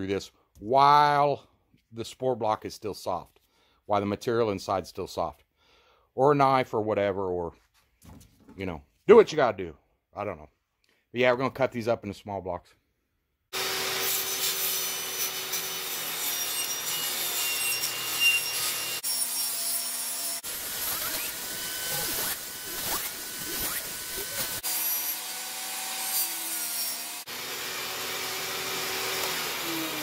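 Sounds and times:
table saw cutting: 13.5 - 30.0.

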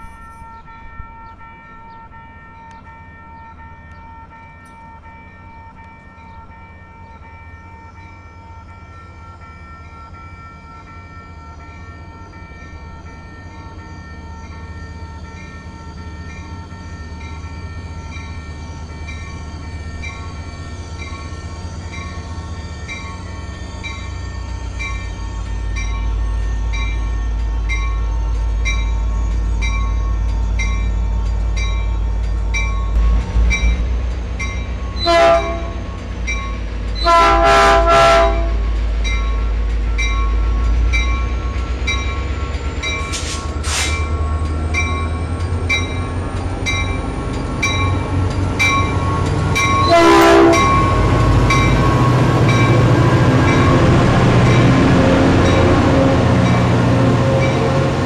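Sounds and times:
diesel locomotive engine rumbling: 0.0 - 58.0
locomotive bell ringing: 0.0 - 58.0
train horn blasts: 35.0 - 36.0, 37.0 - 38.7, 49.8 - 51.2.

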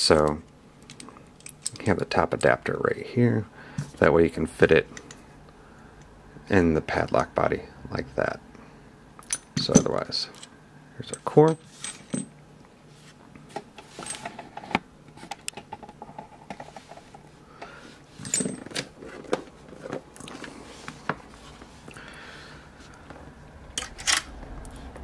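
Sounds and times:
metallic lock clicks and scrapes: 23.8 - 24.4.

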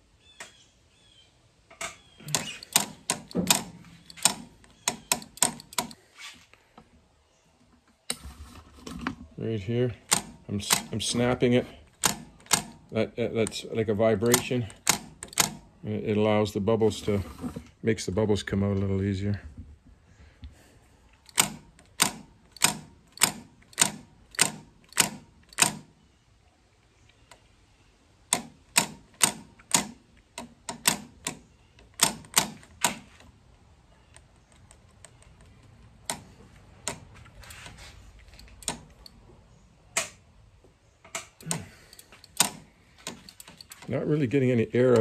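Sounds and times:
clutch lever clicking: 2.2 - 6.0, 10.0 - 11.2, 11.8 - 13.6, 14.2 - 15.6, 21.2 - 25.9, 28.3 - 33.1, 41.1 - 43.9.

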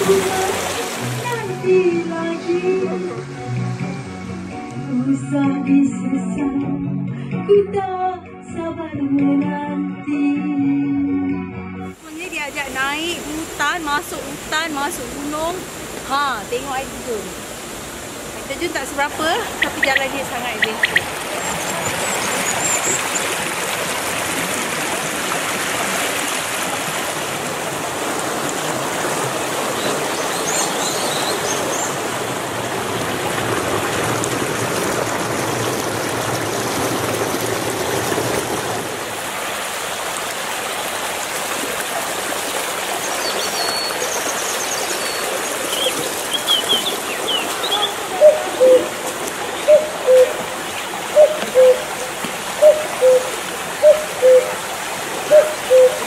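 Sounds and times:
stream rushing over rocks: 0.0 - 3.8, 12.0 - 56.0
high bird chirps: 19.6 - 23.3, 43.2 - 48.8.

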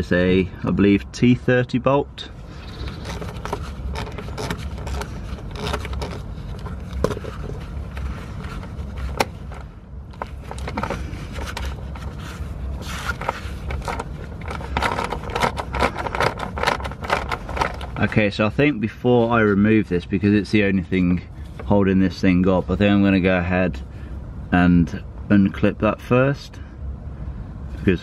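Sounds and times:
low steady hum: 0.0 - 28.0.

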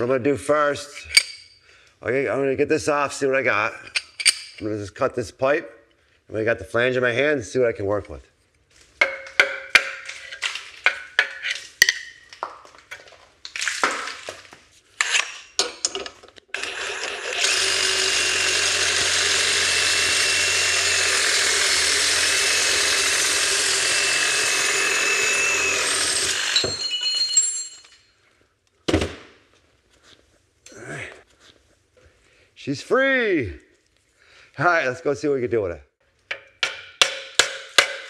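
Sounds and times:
tools clicking and knocking: 1.1 - 1.5, 3.9 - 4.6, 9.0 - 13.1, 15.0 - 16.6, 36.3 - 38.0
power tool whining: 16.5 - 27.1.

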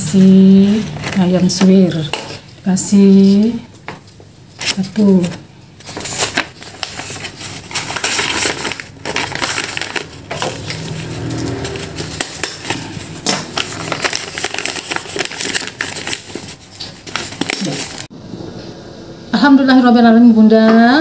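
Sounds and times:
paper wrapper crinkling: 4.5 - 18.1.

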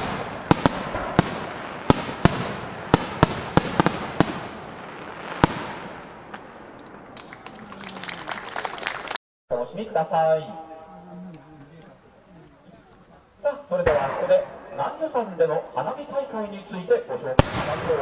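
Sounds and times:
firework crackling: 0.0 - 9.2.

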